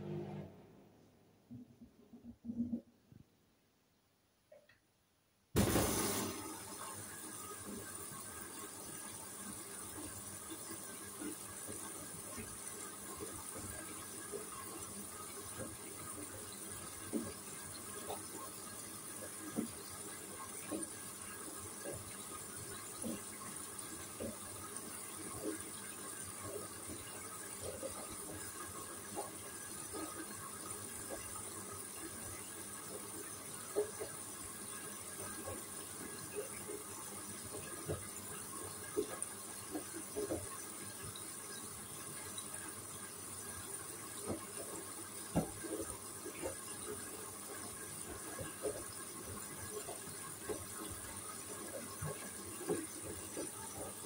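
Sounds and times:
washing machine drum tumbling: 5.6 - 6.9.

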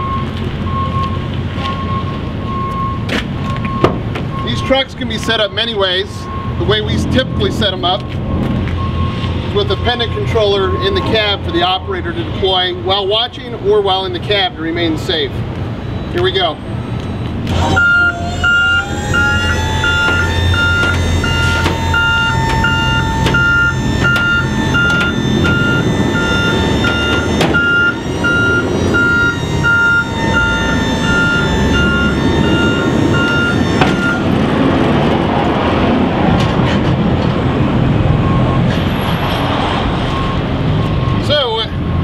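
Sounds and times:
warning beeper: 0.0 - 11.8, 15.8 - 34.9
hydraulic pump whine: 15.9 - 39.2
diesel engine idling: 16.5 - 38.9.

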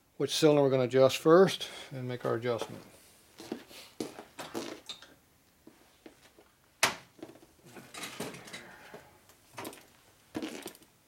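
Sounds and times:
metal hand tools rummaged: 7.7 - 8.9.

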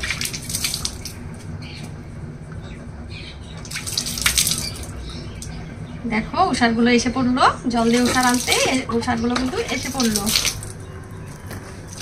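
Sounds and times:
water splashing and dripping into bucket: 0.0 - 1.2, 3.6 - 5.6, 7.8 - 10.8, 11.8 - 12.0.

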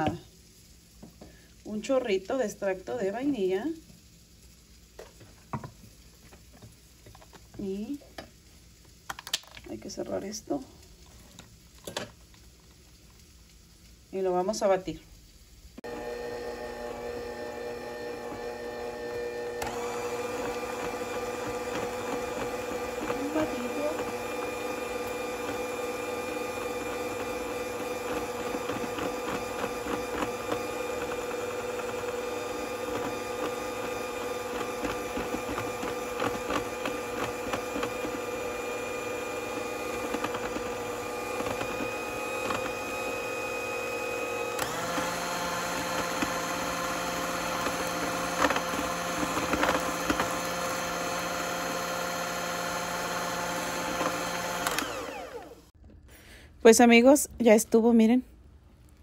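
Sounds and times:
electric hand mixer whine: 15.8 - 55.8.

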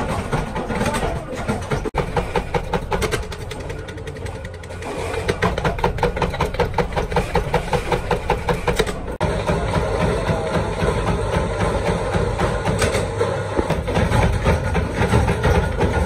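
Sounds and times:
power press clattering: 0.0 - 9.8.

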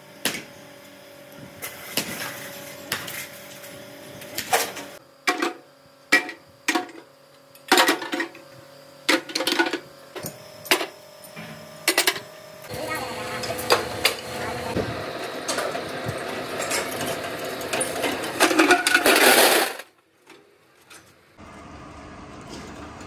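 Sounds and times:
scrap metal dropped into steel bin: 15.5 - 19.9.

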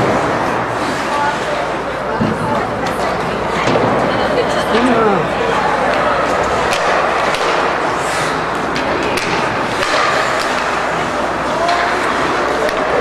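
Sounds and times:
skating and crowd din: 0.0 - 13.0
hockey sticks clacking on puck: 5.9 - 13.0.

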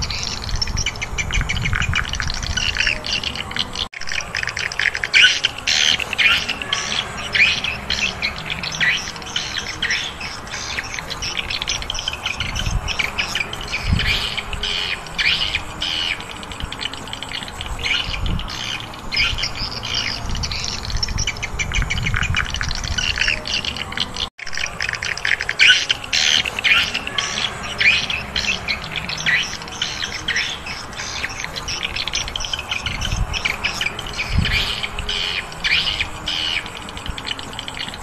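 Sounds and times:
flock of birds chirping: 0.0 - 38.0.

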